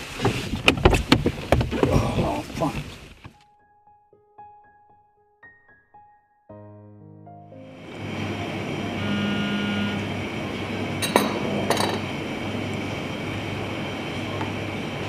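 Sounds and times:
mechanical rumble with low hum: 7.8s - 15.0s.

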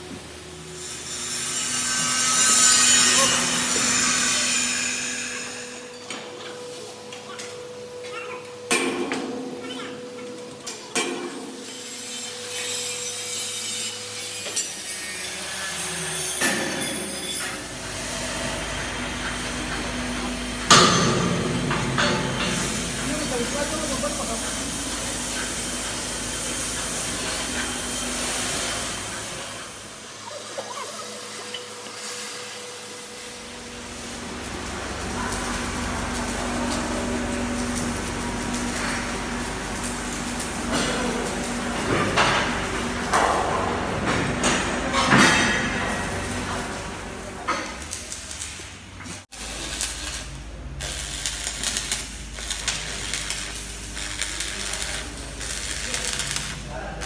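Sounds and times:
hissing machine: 0.0s - 43.7s
welding arc crackling: 16.4s - 43.9s, 46.2s - 57.0s.

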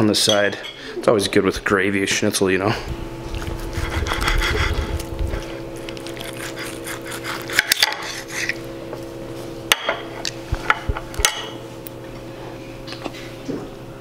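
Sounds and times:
knife and fork scraping on plate: 6.1s - 8.6s.

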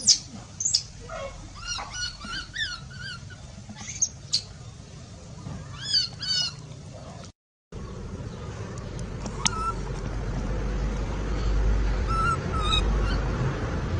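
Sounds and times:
baby monkey distress squeaks: 0.0s - 4.4s, 5.8s - 6.6s, 9.4s - 9.8s, 12.0s - 13.2s.

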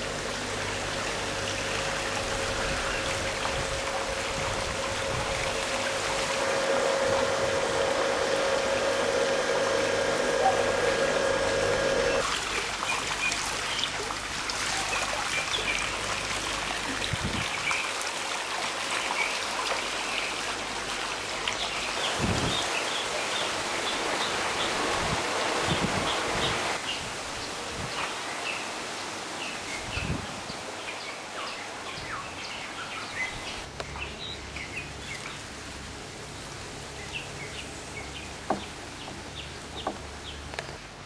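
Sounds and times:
steady hum: 0.0s - 12.2s
water trickling and splashing: 0.0s - 33.7s.

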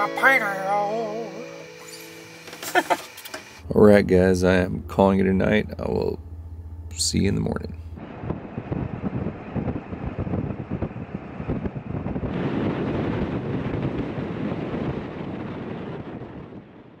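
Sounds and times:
wind buffeting microphone: 8.0s - 17.0s.

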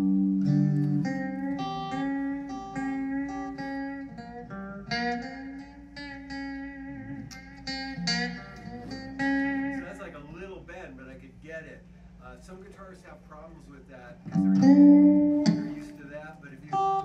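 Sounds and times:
electric guitar melody: 0.0s - 10.1s, 14.2s - 17.0s.

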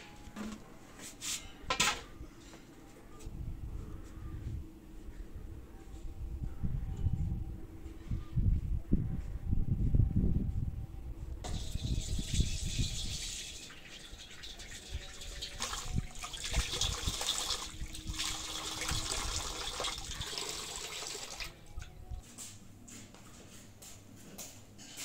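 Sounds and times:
water running from tap: 11.6s - 21.5s.

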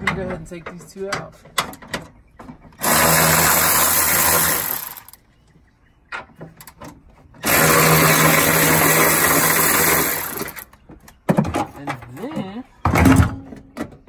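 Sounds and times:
electric ratchet motor buzz: 2.8s - 5.2s, 7.4s - 10.6s.

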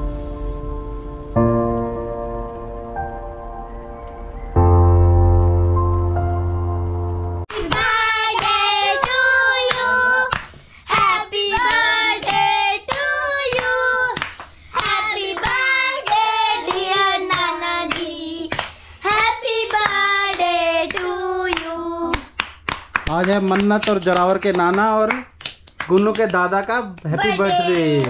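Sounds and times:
children singing: 7.5s - 14.2s, 14.8s - 18.5s
hands clapping: 7.5s - 28.0s.

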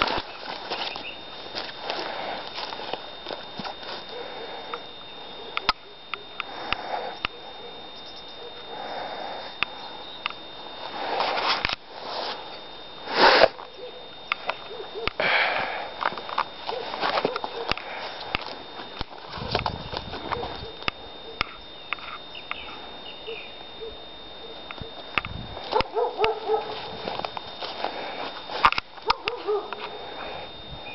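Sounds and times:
footsteps crunching dry leaves: 0.0s - 4.6s, 10.8s - 13.8s, 16.0s - 20.9s, 25.5s - 30.3s
sniffing and breathing: 1.6s - 3.0s, 3.8s - 4.8s, 6.4s - 7.8s, 8.6s - 9.8s, 15.0s - 18.6s, 25.6s - 28.7s.

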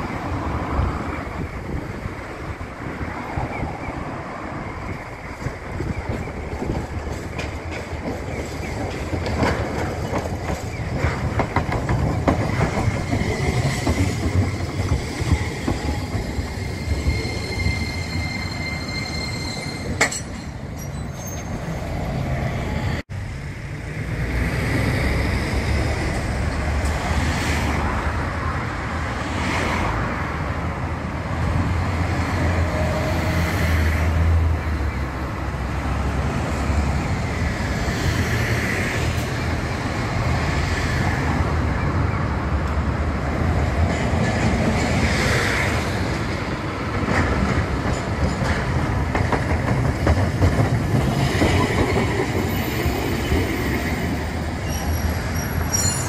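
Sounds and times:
road traffic: 0.0s - 56.0s
tram clicking over rails: 0.0s - 56.0s
tram high whine: 0.0s - 56.0s
bus passing: 21.6s - 49.2s.

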